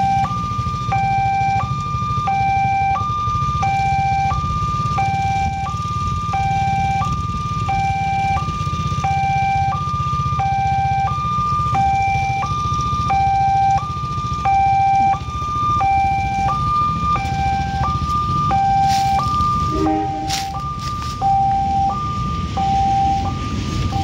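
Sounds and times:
two-tone crossing alarm: 0:00.0 - 0:24.0
steady low rumble: 0:14.2 - 0:24.0.

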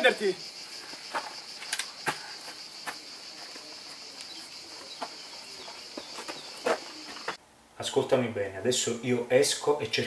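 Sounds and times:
insect chorus buzzing: 0:00.0 - 0:07.4.

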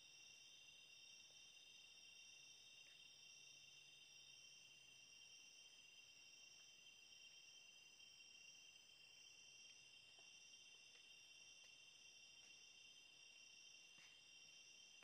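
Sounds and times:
crickets trilling: 0:00.0 - 0:15.0.

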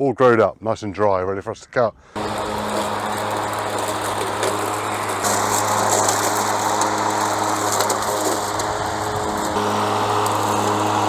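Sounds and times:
mower motor humming: 0:02.2 - 0:11.0.

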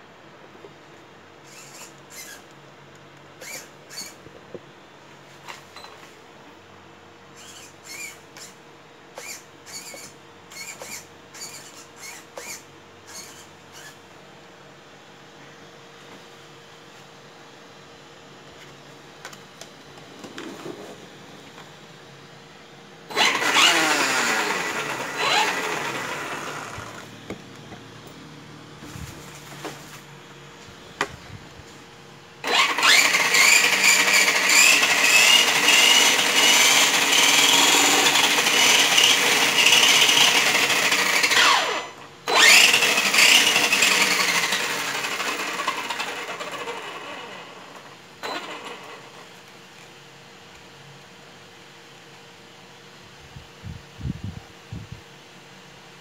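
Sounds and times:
electric motor high-pitched whine: 0:01.5 - 0:02.5, 0:03.4 - 0:04.2, 0:07.4 - 0:08.6, 0:09.2 - 0:14.0, 0:23.1 - 0:29.0, 0:32.4 - 0:49.2.

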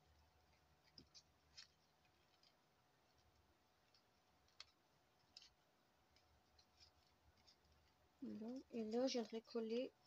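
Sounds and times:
faint paper handling clicks: 0:00.1 - 0:09.7.

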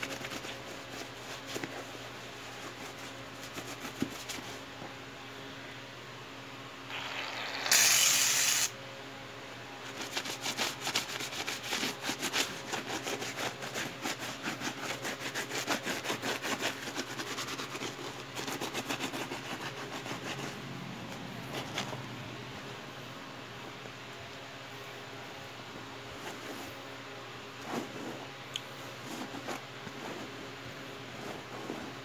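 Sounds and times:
aerosol spray hiss: 0:07.7 - 0:08.7
scrubbing leather sneaker: 0:29.0 - 0:30.4.

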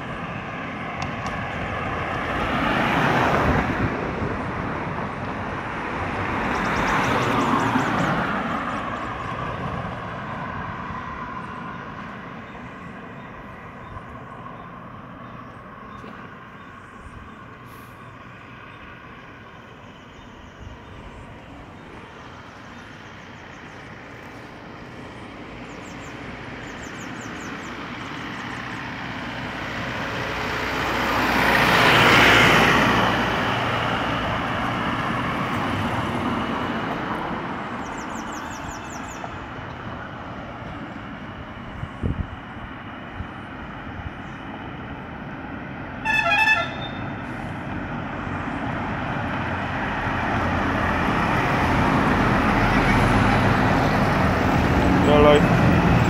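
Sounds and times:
road traffic passing: 0:00.0 - 0:56.0
pickup truck driving past: 0:20.8 - 0:41.6, 0:42.5 - 0:56.0.

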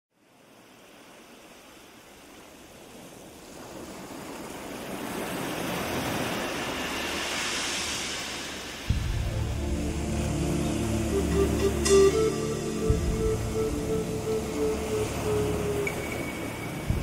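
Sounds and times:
steady rushing noise: 0:05.5 - 0:17.0.

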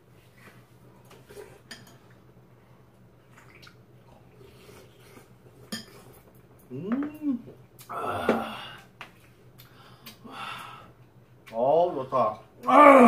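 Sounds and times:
spoon and chopsticks clinking bowl: 0:05.7 - 0:06.0.

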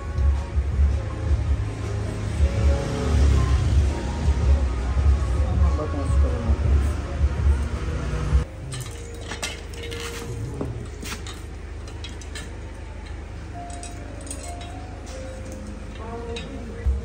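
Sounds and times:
metal rack parts clinking: 0:08.5 - 0:16.8.

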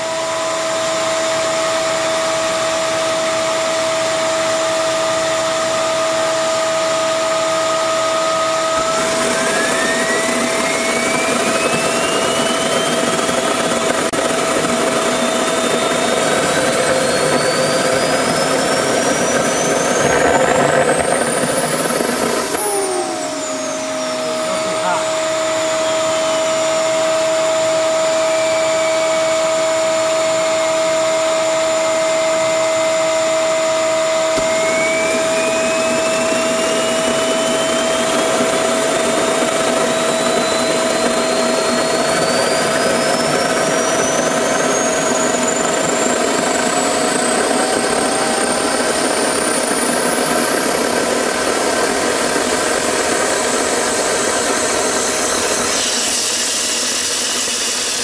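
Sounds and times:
high turbine whine: 0:00.0 - 0:58.0
jet engine roaring: 0:00.0 - 0:58.0
steady hum: 0:05.6 - 0:29.3.

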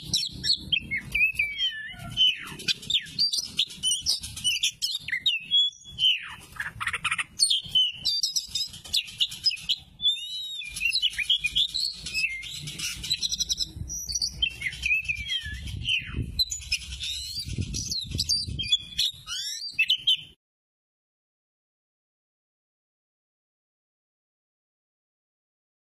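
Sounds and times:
bird singing whistles and chatter: 0:00.0 - 0:20.4.

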